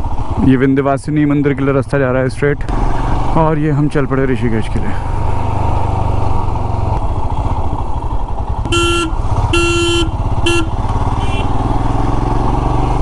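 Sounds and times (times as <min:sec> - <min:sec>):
motorcycle engine running: 0:00.0 - 0:13.0
horn short blasts: 0:08.6 - 0:11.5.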